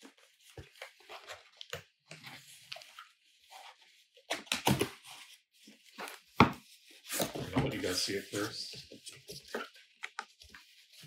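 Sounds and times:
cardboard scraping and clicking: 5.9 - 8.5.

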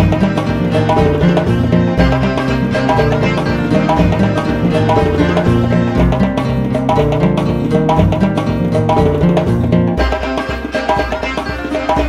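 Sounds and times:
plucked-string tune: 0.0 - 12.0
steady drum beat: 0.0 - 12.0.

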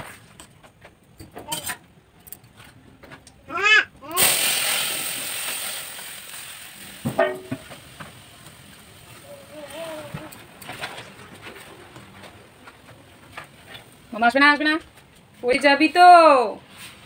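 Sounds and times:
loud sizzle of oil: 4.1 - 11.6.

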